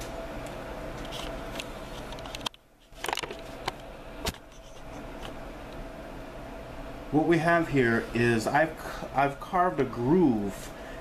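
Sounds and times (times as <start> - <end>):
room hum: 0.0 - 11.0.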